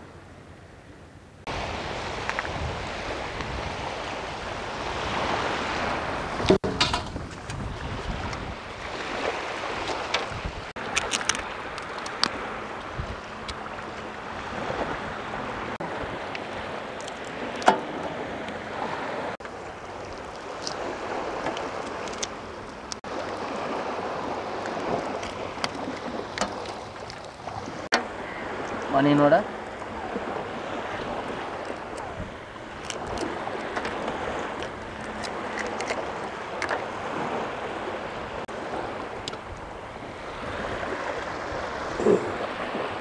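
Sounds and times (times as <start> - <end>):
sea waves washing onto beach: 1.4 - 43.0
wind on microphone: 1.5 - 43.0
hands handling prawns clicking: 10.9 - 12.3.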